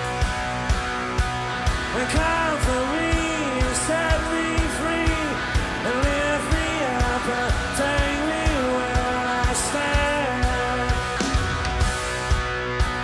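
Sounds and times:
electric guitars: 0:00.0 - 0:13.0
man singing lead vocal: 0:01.9 - 0:11.6.

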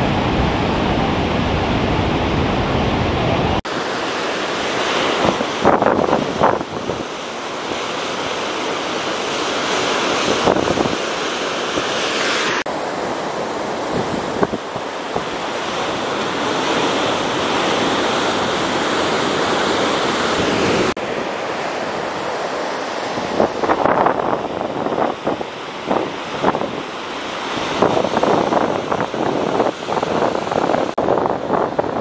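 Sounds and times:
ocean waves breaking: 0:00.0 - 0:32.0
wind buffeting microphone: 0:05.1 - 0:07.2, 0:10.2 - 0:11.2, 0:13.6 - 0:20.9, 0:22.8 - 0:32.0.

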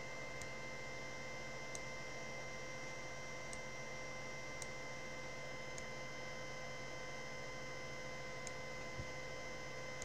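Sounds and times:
steady whining hum: 0:00.0 - 0:10.0
computer mouse click: 0:04.6 - 0:04.8.

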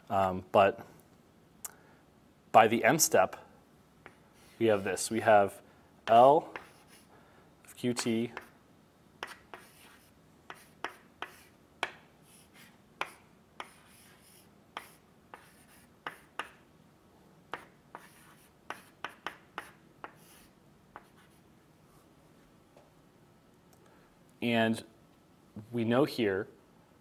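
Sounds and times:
chalk scratching: 0:04.0 - 0:05.1, 0:06.5 - 0:07.1, 0:08.0 - 0:08.6, 0:09.2 - 0:16.6, 0:17.5 - 0:21.4
chalk tapping on blackboard: 0:06.0 - 0:07.1, 0:08.3 - 0:08.6, 0:09.2 - 0:16.6, 0:17.5 - 0:21.4.

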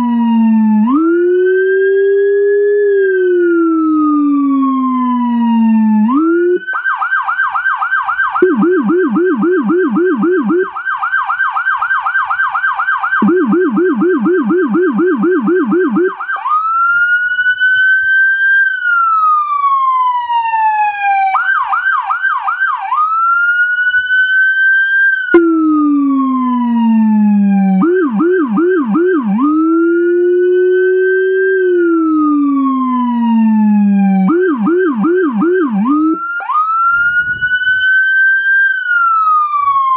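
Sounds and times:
deep low-frequency siren: 0:00.0 - 0:39.9
electronic siren wail and yelp: 0:00.0 - 0:39.9.

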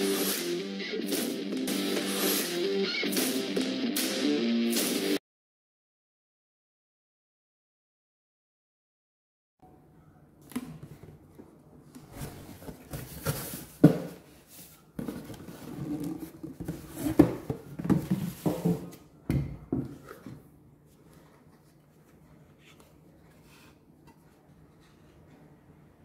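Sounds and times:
cardboard and packaging rustling: 0:10.8 - 0:19.0.

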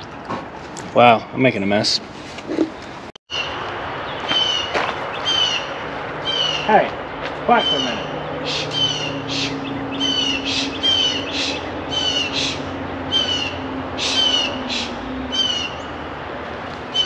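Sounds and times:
bird harsh high calls: 0:03.3 - 0:16.0.

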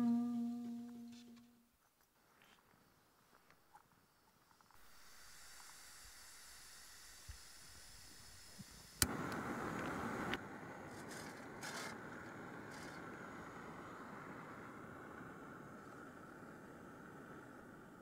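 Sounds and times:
gas hissing from stove valve: 0:04.8 - 0:15.8
gas burner burning: 0:04.8 - 0:18.0
piezo igniter click: 0:09.0 - 0:10.4.

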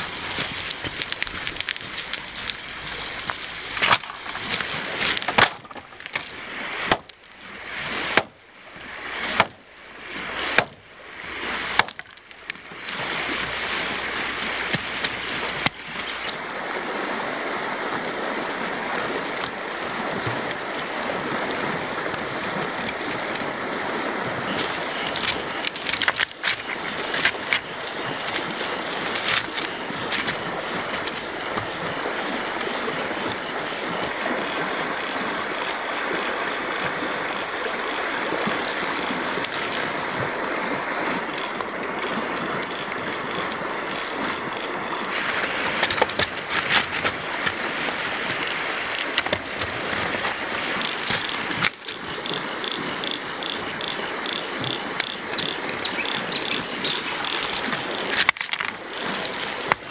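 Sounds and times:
river rushing over stones: 0:00.0 - 0:59.9
sticks knocking on stones: 0:03.2 - 0:06.3, 0:11.7 - 0:12.4, 0:45.4 - 0:47.6.

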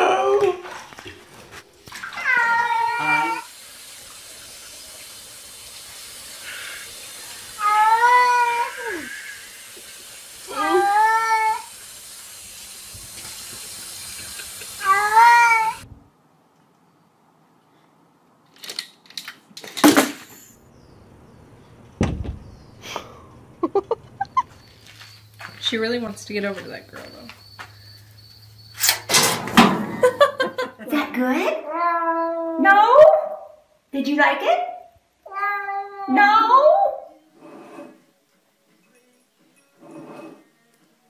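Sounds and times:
cat meowing: 0:02.1 - 0:03.5, 0:14.8 - 0:15.8, 0:31.6 - 0:32.6, 0:35.2 - 0:36.3
running water from sink sprayer: 0:02.2 - 0:15.8
cat thumping against glass: 0:22.0 - 0:22.5
glass door rattling bang: 0:22.0 - 0:22.6.

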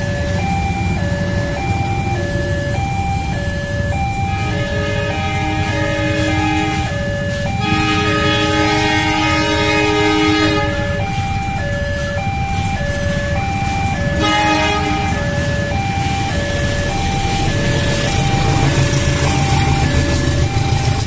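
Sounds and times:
level crossing two-tone alarm: 0:00.0 - 0:21.0
motorcycles idling: 0:00.0 - 0:21.0
train horn: 0:04.3 - 0:11.0, 0:14.2 - 0:15.3.

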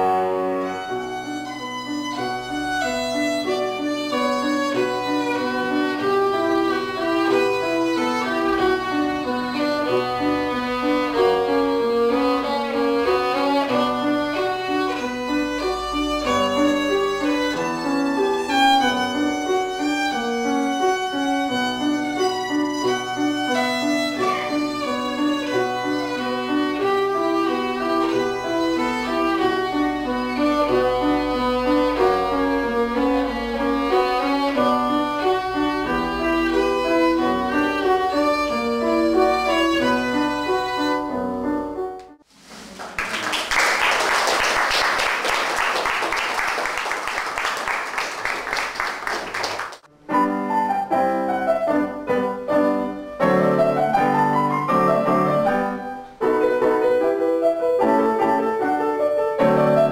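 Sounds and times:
violin classical piece: 0:00.0 - 0:42.2, 0:50.2 - 0:59.9
grand piano piece: 0:00.0 - 0:59.9
audience applauding: 0:42.6 - 0:49.9.

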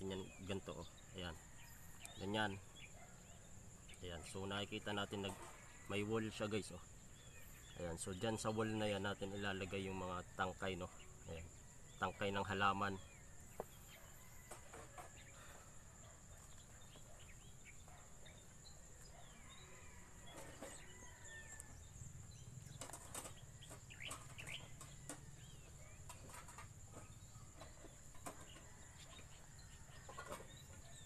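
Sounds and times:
soil scratching and rustling: 0:19.0 - 0:31.0.

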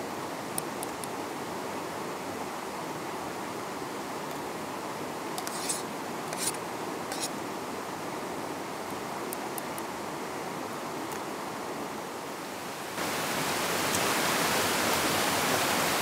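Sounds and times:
shallow stream rushing: 0:00.0 - 0:16.0
short scrapes: 0:05.4 - 0:07.4.

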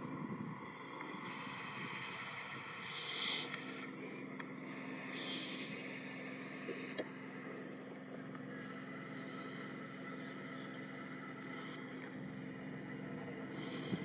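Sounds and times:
wind hiss: 0:00.0 - 0:04.0
low motor hum: 0:00.0 - 0:14.0.

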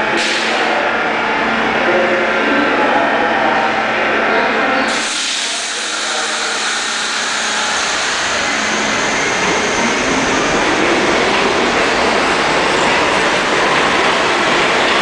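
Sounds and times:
subway train wheels rushing: 0:00.0 - 0:15.0.

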